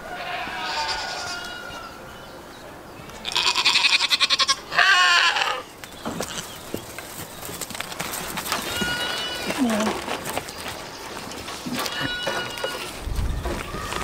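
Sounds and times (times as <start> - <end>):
goats bleating: 0.1 - 1.8, 3.2 - 6.6, 8.6 - 11.0, 11.6 - 13.0.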